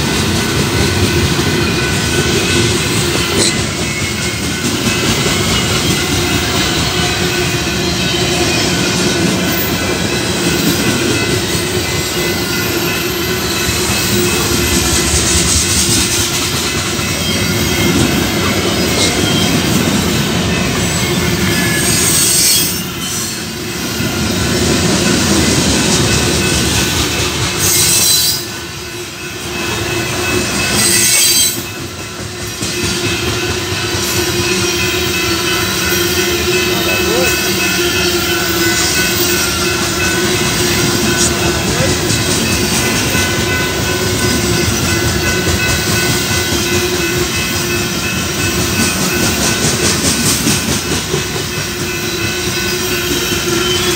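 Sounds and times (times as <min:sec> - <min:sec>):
train wheels rumbling on rails: 0:00.0 - 0:53.9
high-pitched wheel squeal: 0:30.8 - 0:31.6.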